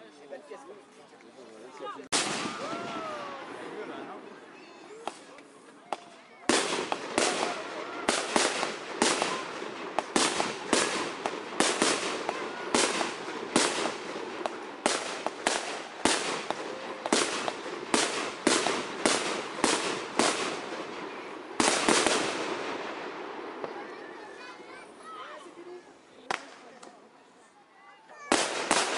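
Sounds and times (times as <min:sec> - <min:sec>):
fireworks bangs with echo: 0:02.1 - 0:04.2, 0:04.9 - 0:24.6, 0:28.2 - 0:28.9.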